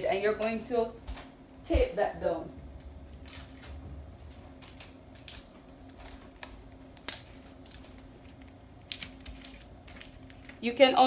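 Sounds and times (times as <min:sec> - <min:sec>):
paper rustling and crinkling: 0:03.1 - 0:11.0.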